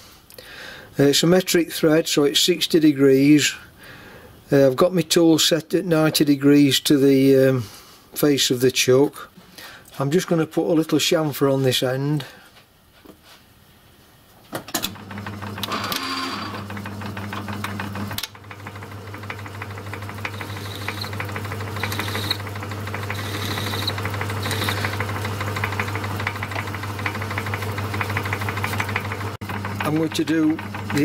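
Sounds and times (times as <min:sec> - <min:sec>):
lathe motor hum: 0:14.9 - 0:31.0
high-pitched cutting bursts: 0:20.2 - 0:25.0.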